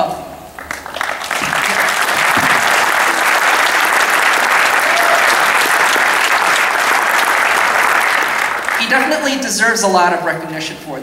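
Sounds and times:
audience applauding: 0:00.6 - 0:09.4.

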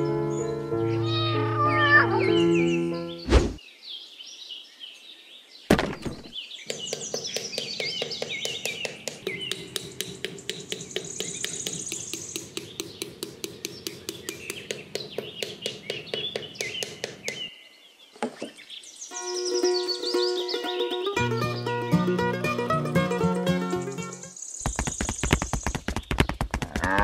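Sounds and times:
birds chirping: 0:00.0 - 0:27.0
sharp knock: 0:05.7 - 0:17.5
rapid tapping knocks: 0:06.7 - 0:17.5, 0:24.6 - 0:27.0.

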